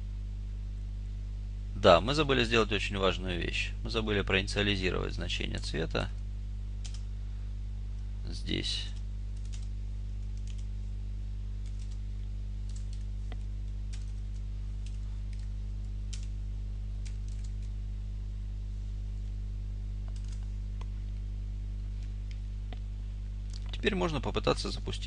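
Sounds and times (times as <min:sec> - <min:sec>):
low electrical hum: 0:00.0 - 0:25.0
keyboard keystrokes: 0:12.7 - 0:15.5, 0:16.1 - 0:16.3, 0:17.0 - 0:17.7, 0:20.0 - 0:20.5.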